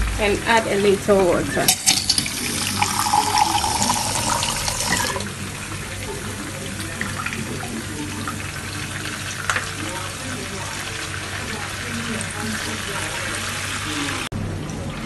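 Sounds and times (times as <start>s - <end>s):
tap water filling a plastic cup: 1.7s - 5.4s.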